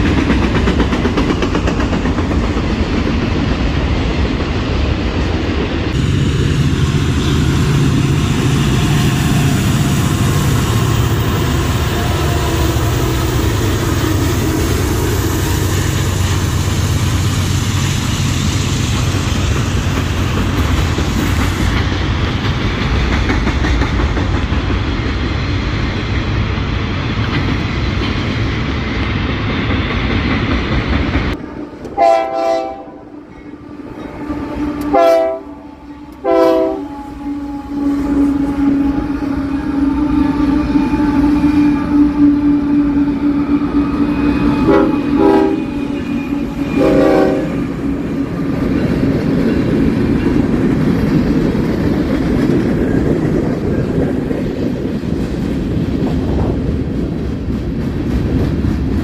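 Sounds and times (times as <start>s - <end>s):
train wheels rumbling on rails: 0.0s - 59.0s
train horn blast: 31.4s - 47.8s.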